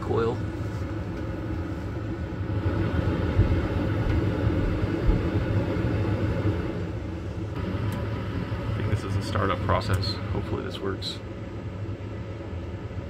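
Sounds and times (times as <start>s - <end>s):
furnace motor hum: 0.0s - 13.0s.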